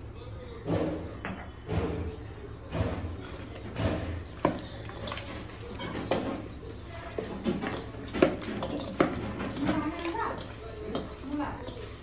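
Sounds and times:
meat rubbed in a bowl: 3.0s - 12.0s.

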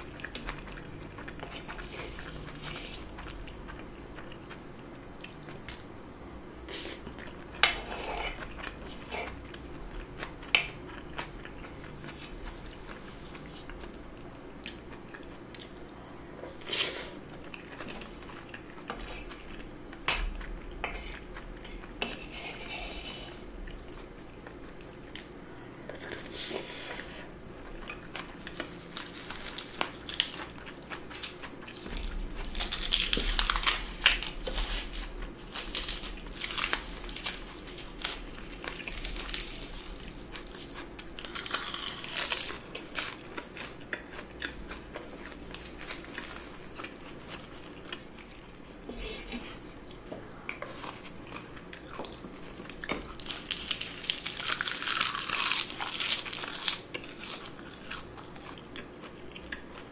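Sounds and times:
chewing: 0.0s - 6.0s, 6.7s - 59.9s
wooden spoon scraping a bowl: 7.7s - 8.4s, 22.0s - 23.4s, 48.9s - 49.8s.

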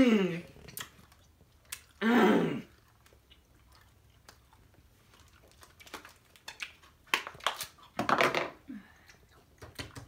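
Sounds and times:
chewing and mouth clicks: 0.6s - 2.0s, 2.7s - 8.0s.

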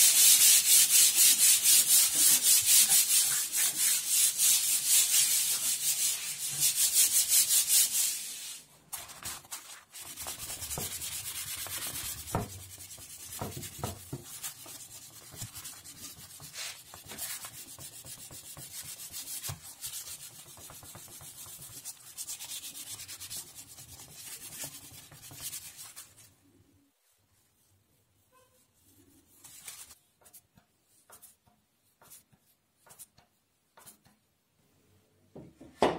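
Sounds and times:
sandpaper rubbing on wood: 0.0s - 8.6s, 9.4s - 26.3s.

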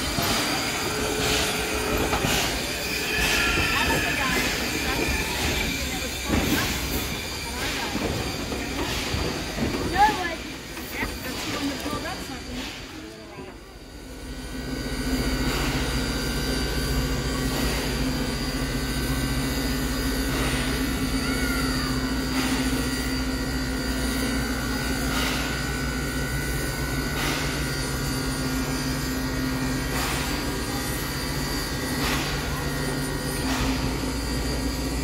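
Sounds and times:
steam hissing puffs: 0.0s - 13.3s.

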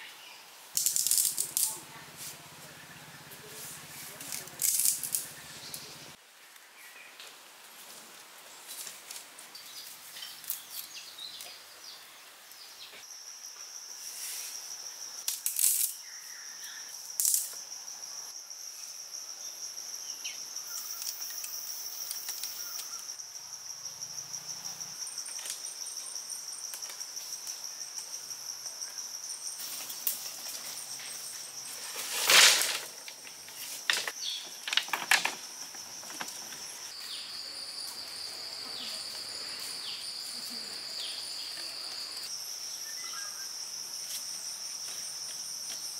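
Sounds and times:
insects droning: 0.0s - 6.8s, 8.5s - 45.9s
knocks and rustles of sticks: 29.6s - 36.7s.

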